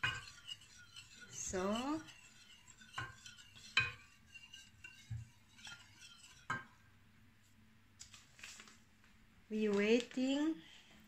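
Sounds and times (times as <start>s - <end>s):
utensil clinking against pot: 0.0s - 6.8s.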